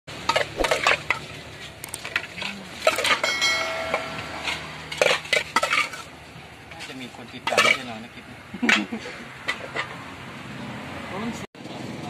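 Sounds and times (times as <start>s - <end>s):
metal utensil scraping metal bowl: 0.3s - 6.2s
brief ringing tone: 3.3s - 4.9s.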